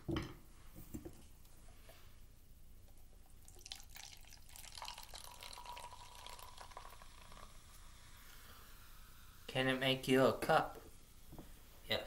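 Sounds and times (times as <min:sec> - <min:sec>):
cola pouring and fizzing: 0:02.8 - 0:09.5
rising tone of glass filling: 0:03.6 - 0:08.1.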